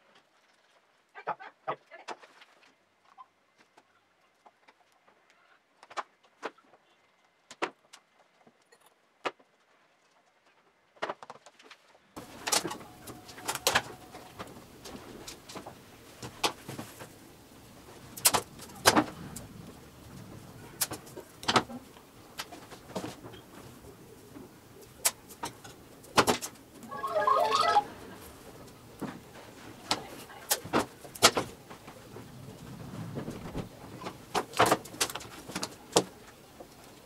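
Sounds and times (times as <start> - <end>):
steady background hiss: 12.2 - 37.0.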